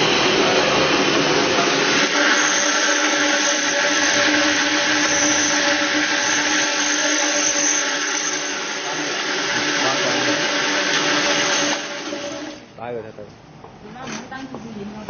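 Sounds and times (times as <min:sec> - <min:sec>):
industrial blender running: 0:00.0 - 0:12.8.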